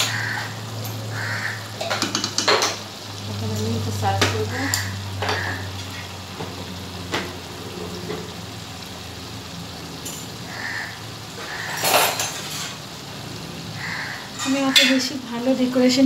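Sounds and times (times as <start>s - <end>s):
spoon knocking pan: 0.0s - 2.9s, 3.5s - 8.4s, 14.2s - 15.2s
curry sizzling in a wok: 0.0s - 16.0s
spoon scraping pan: 11.4s - 12.9s.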